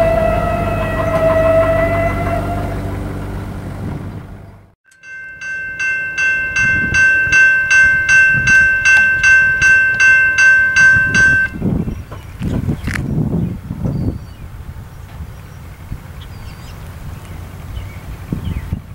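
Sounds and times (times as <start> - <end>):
level-crossing bell ringing: 4.9 - 11.6.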